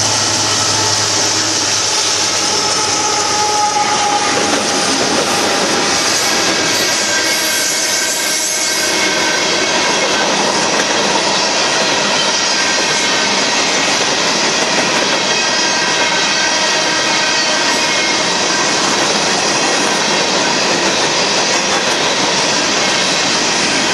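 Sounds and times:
faint high tones: 0:00.0 - 0:03.4.

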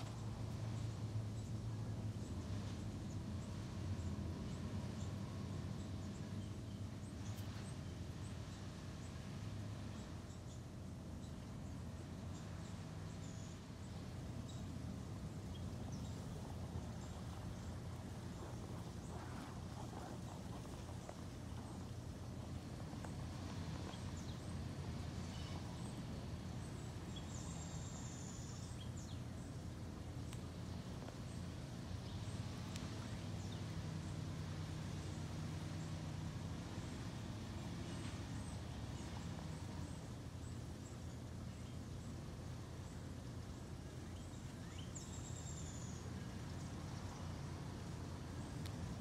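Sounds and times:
steady low rumble: 0:00.0 - 0:49.0
long high bird calls: 0:10.0 - 0:29.9.

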